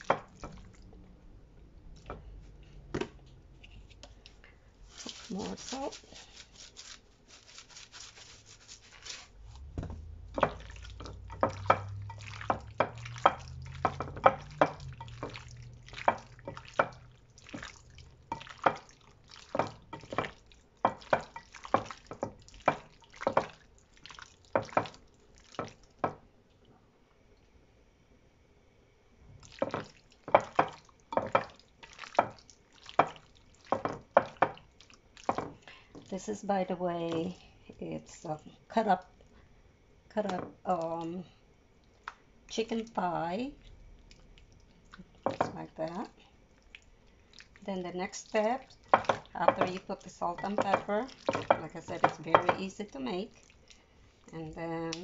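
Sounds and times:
hands kneading raw chicken: 0:03.8 - 0:25.8
salt shaker rattling: 0:04.8 - 0:09.4.

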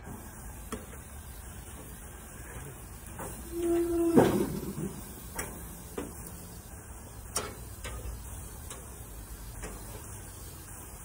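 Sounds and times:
metal tongs clicking on grill grates: 0:07.3 - 0:10.0.

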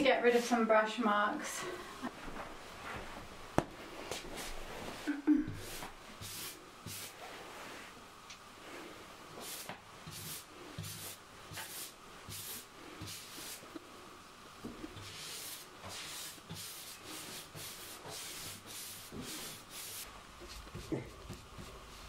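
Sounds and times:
paintbrush strokes swishing: 0:15.0 - 0:22.0.

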